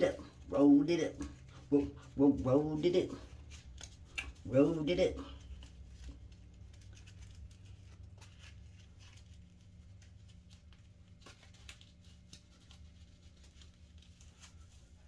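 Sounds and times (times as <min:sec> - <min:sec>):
hair rustling: 0:00.0 - 0:15.0
low steady hum: 0:00.0 - 0:15.0.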